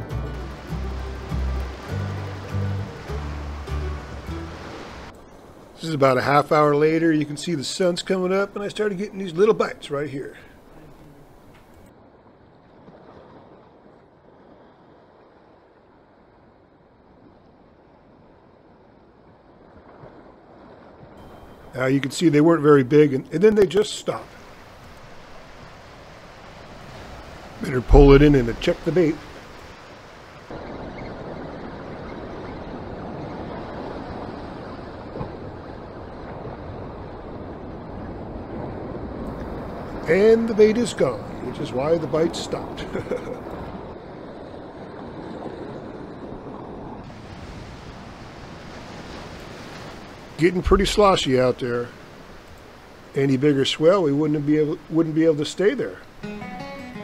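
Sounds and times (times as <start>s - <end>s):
ocean surf washing over rocks: 0.0s - 12.2s, 19.5s - 56.6s
wind buffeting microphone: 42.8s - 53.1s.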